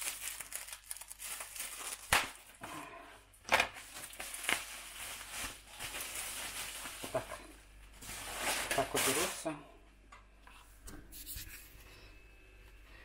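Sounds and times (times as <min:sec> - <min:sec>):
packaging rustling: 0:00.0 - 0:02.6, 0:03.4 - 0:09.4.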